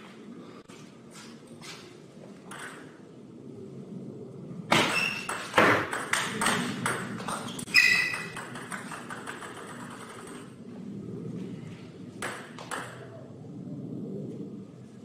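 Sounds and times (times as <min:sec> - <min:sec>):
ball bouncing to a stop: 0:04.7 - 0:10.6, 0:12.2 - 0:13.1.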